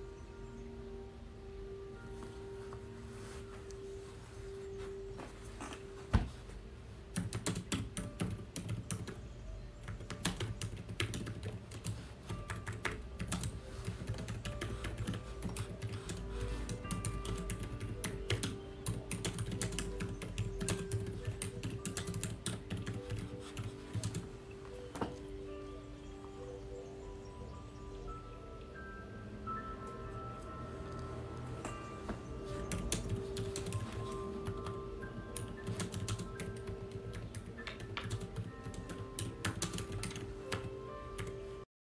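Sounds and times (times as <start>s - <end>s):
soft background music: 0.0s - 41.7s
typing on a keyboard: 7.1s - 9.2s, 9.8s - 24.3s, 32.7s - 41.4s.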